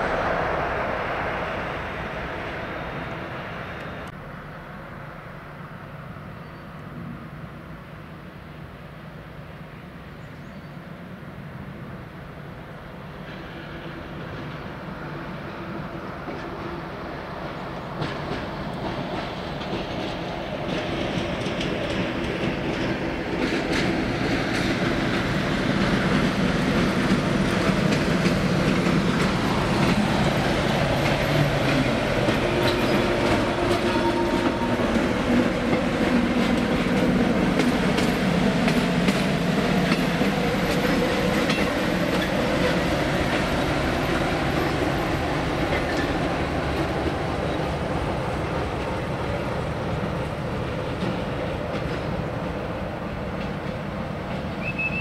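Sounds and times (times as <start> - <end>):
diesel locomotive engine running: 13.0 - 55.0
train wheels clicking over rails: 13.0 - 55.0.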